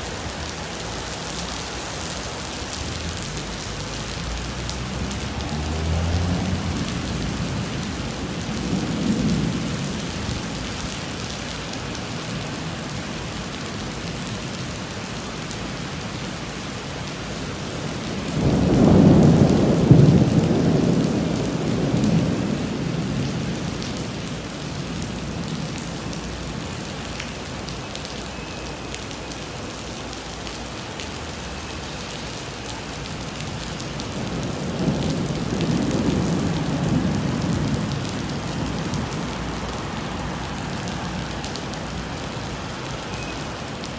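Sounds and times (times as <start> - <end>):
heavy rain on pavement: 0.0 - 43.9
thunder rumbling: 4.1 - 13.4, 17.4 - 27.0, 33.0 - 43.0.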